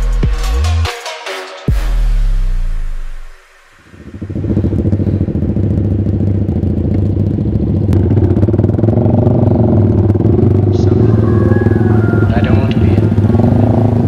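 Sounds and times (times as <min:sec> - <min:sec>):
motorcycle engine running: 0:03.8 - 0:14.0.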